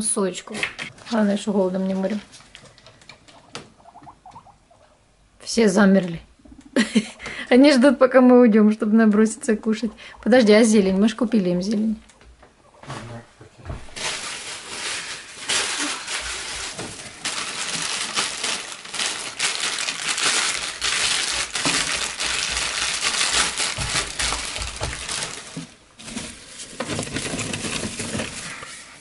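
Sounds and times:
plastic bag crinkling: 0:13.9 - 0:28.6.

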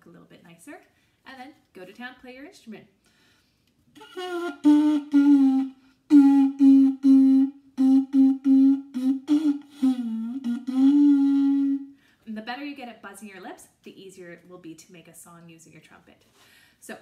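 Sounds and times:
homemade trumpet tooting a tune: 0:04.0 - 0:12.0.

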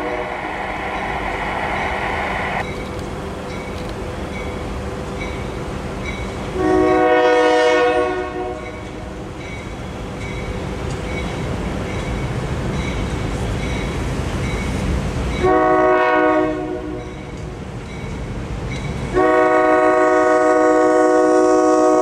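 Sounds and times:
locomotive air horn: 0:00.0 - 0:00.4, 0:06.6 - 0:08.8, 0:15.4 - 0:17.1, 0:19.2 - 0:22.0
train rumbling: 0:00.0 - 0:22.0
crossing warning bell: 0:02.6 - 0:06.5, 0:08.5 - 0:15.8, 0:16.8 - 0:19.2.

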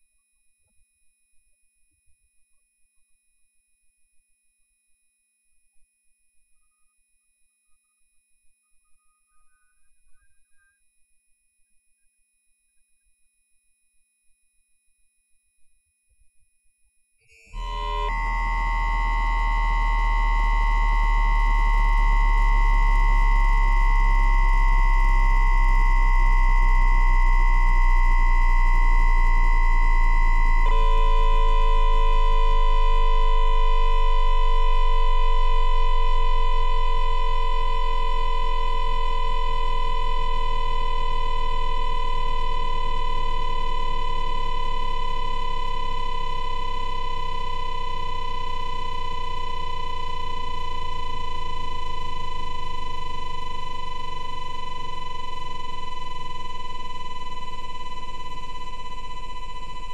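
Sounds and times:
electric train inverter whine: 0:17.6 - 0:59.9
low hum: 0:17.6 - 0:59.9.

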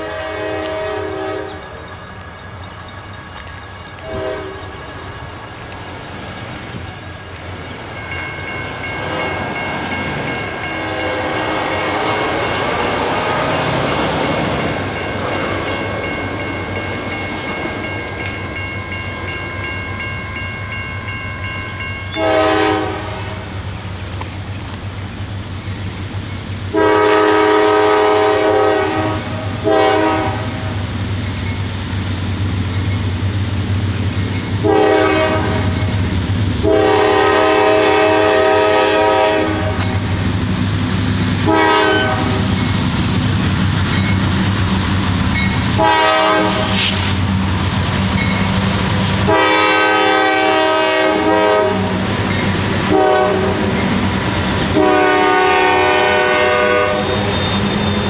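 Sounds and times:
distant locomotive horn blasts: 0:00.0 - 0:01.9, 0:04.0 - 0:05.2, 0:08.8 - 0:13.9, 0:22.0 - 0:23.6, 0:26.7 - 0:30.8, 0:34.6 - 0:35.8, 0:36.6 - 0:40.0, 0:41.4 - 0:42.5, 0:45.8 - 0:47.0, 0:49.2 - 0:52.1, 0:52.8 - 0:53.8, 0:54.7 - 0:57.4
train rumbling: 0:00.0 - 0:58.0.

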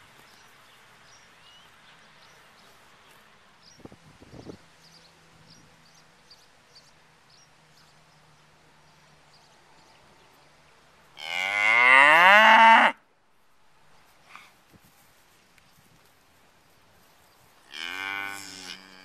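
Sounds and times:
cow mooing: 0:17.7 - 0:19.0.

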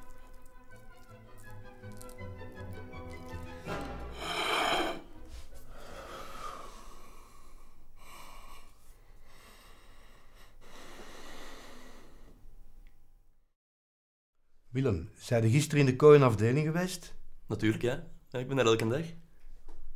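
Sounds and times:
background music: 0:00.0 - 0:07.4
man breathing heavily and sighing: 0:03.5 - 0:12.4.

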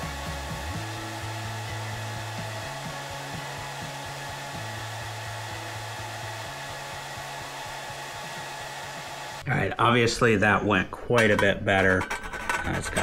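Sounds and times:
background music with bass line: 0:00.0 - 0:09.4.

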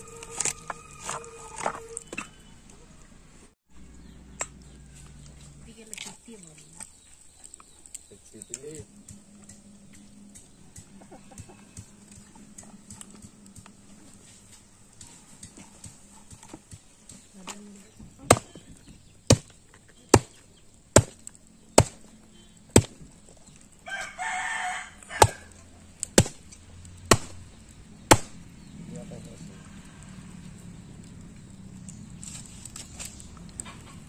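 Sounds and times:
meat chopped on wooden block: 0:19.3 - 0:19.5, 0:21.0 - 0:22.0, 0:26.1 - 0:26.4.

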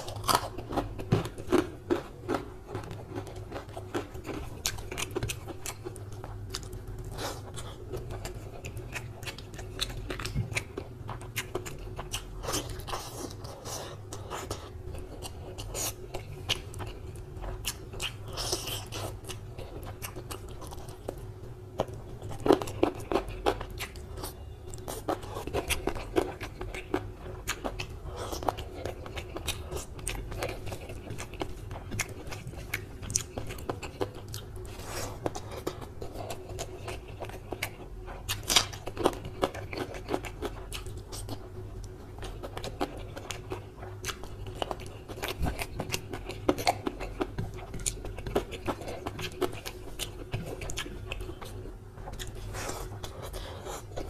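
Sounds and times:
close chewing and mouth smacks: 0:00.0 - 0:54.0
faint steady hum: 0:00.0 - 0:54.0.

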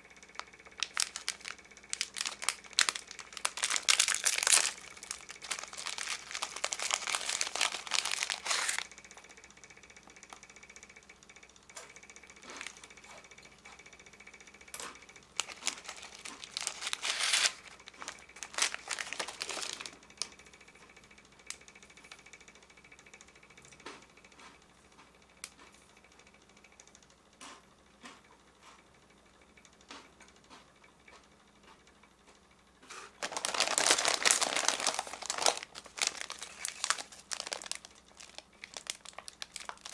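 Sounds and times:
plastic wrappers crinkling: 0:00.4 - 0:08.9, 0:12.4 - 0:12.8, 0:15.3 - 0:20.0, 0:33.2 - 0:39.9
wrapper tearing: 0:00.4 - 0:08.9, 0:15.4 - 0:20.0, 0:33.2 - 0:39.9.

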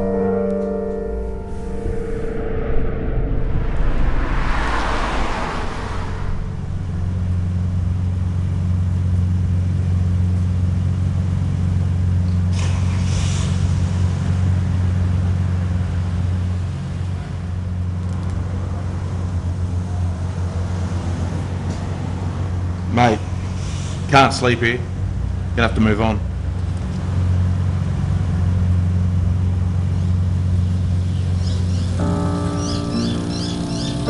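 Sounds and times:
low rumble of city traffic: 0:00.0 - 0:34.0
car passing on wet road: 0:01.4 - 0:10.5.

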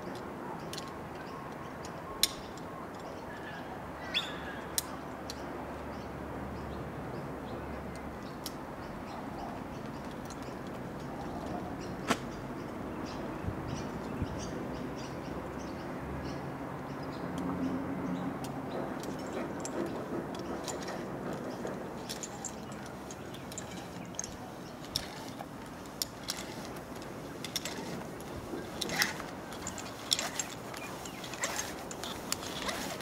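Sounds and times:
metallic clicks of climbing hardware: 0:00.0 - 0:03.5, 0:18.4 - 0:33.0
outdoor background noise: 0:00.0 - 0:33.0.

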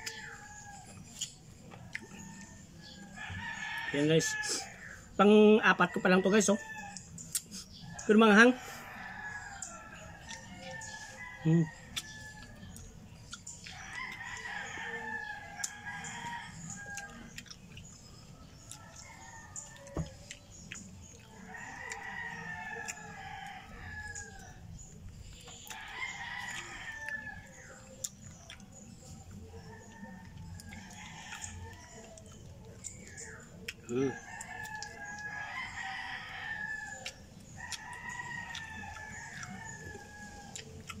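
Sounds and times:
rooster crowing: 0:01.9 - 0:04.8, 0:13.8 - 0:17.3, 0:21.4 - 0:24.6, 0:25.7 - 0:27.9, 0:33.9 - 0:40.6.

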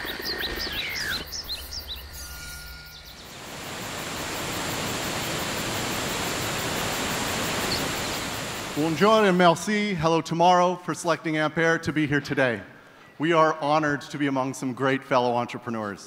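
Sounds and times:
bird chirping calls: 0:00.0 - 0:03.4, 0:07.6 - 0:09.0
waterfall roaring: 0:03.2 - 0:09.7.

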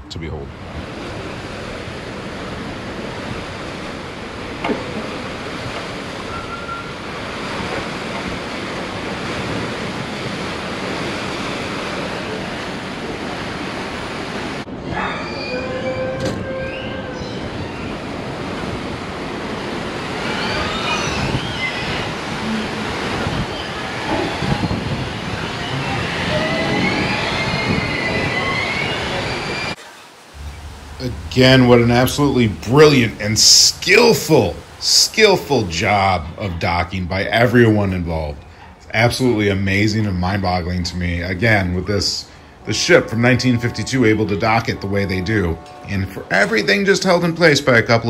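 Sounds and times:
ship engine rumbling and churning: 0:00.0 - 0:48.0.

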